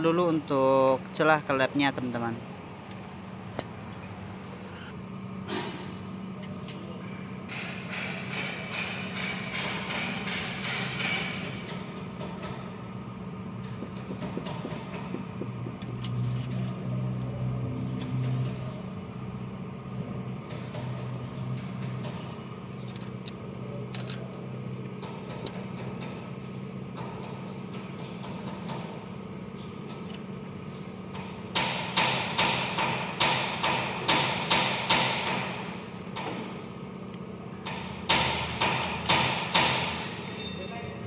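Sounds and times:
sharp metallic knocks: 7.5 - 12.7, 13.6 - 17.0, 31.1 - 36.6, 37.6 - 40.6
low hum: 12.8 - 20.3
hand tools on metal: 13.6 - 17.3.

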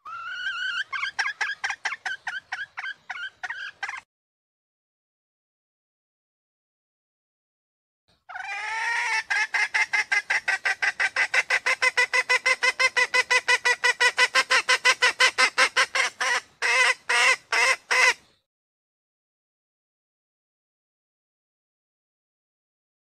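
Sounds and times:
hen clucking and calling: 0.0 - 4.0, 8.2 - 18.4.

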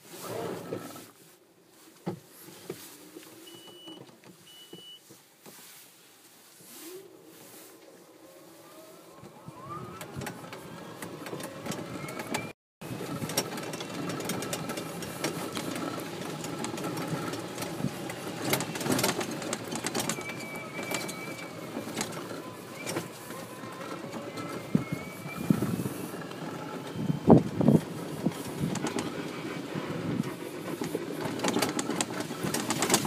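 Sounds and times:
electric motor whine: 8.0 - 30.5
cart body rattling: 8.8 - 33.0.

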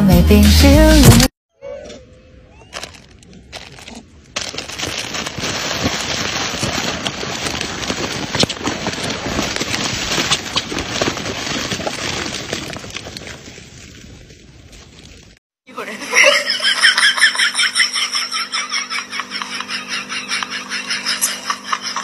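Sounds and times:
plastic wrappers crinkling: 2.7 - 15.4.

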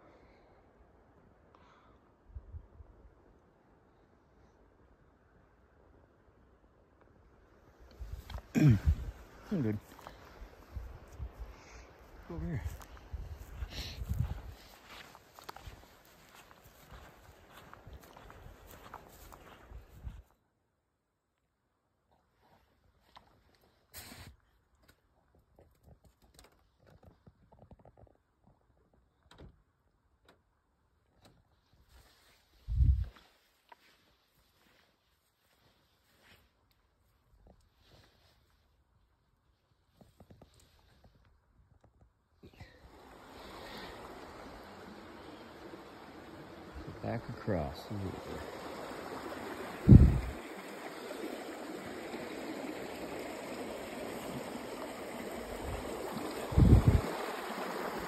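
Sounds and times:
creek water running: 7.7 - 20.2, 42.6 - 58.0.

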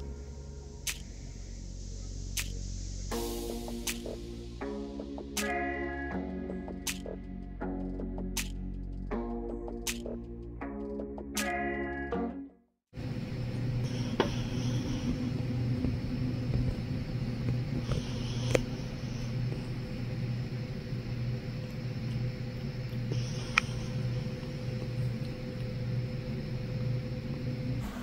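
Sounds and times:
low mechanical hum: 0.0 - 10.2, 13.0 - 28.0
sharp clicks: 8.4 - 8.6.

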